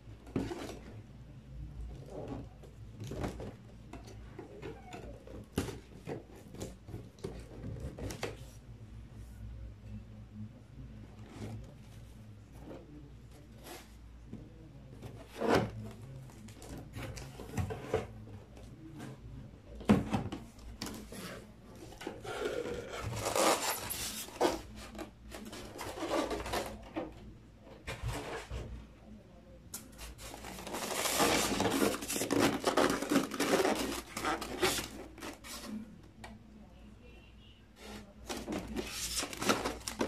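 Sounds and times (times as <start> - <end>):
styrofoam packaging handled: 22.0 - 26.9, 30.0 - 35.7, 38.2 - 40.0
cardboard box rustling: 30.1 - 35.8.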